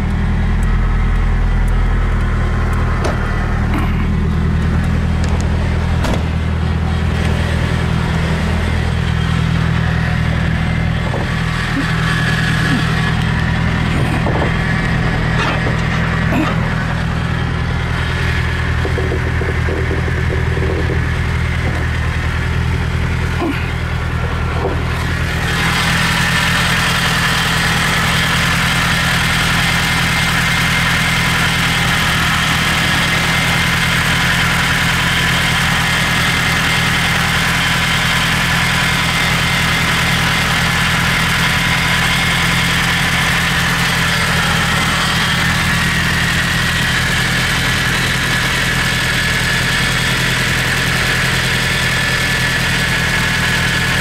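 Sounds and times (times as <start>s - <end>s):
car engine idling: 0.0s - 54.0s.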